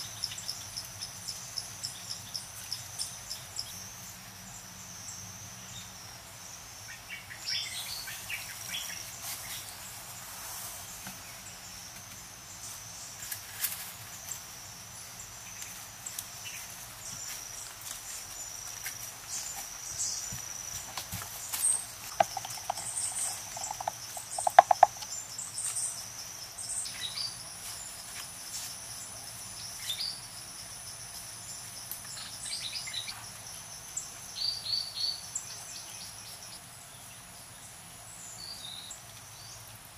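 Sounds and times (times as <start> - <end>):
insects droning: 0.0 - 39.9
bird chirps: 21.6 - 25.9.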